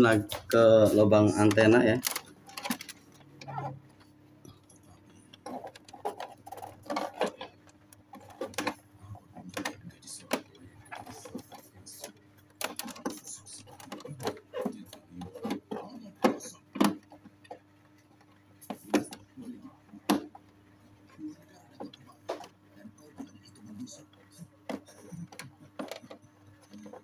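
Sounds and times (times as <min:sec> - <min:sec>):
faint steady hum: 0:00.0 - 0:27.0
cable plug clicking and rattling: 0:01.4 - 0:03.3, 0:12.6 - 0:13.2.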